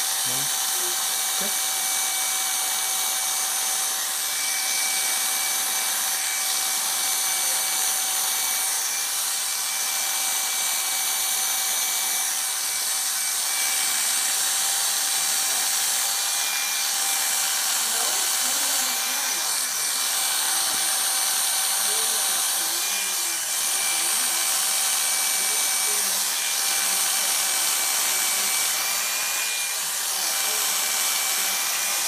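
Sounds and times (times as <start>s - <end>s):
electric clippers whining: 0.0s - 32.0s.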